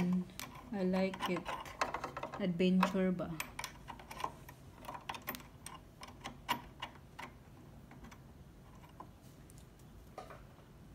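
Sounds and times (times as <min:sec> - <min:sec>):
small metal clicks and taps: 0:00.0 - 0:08.2.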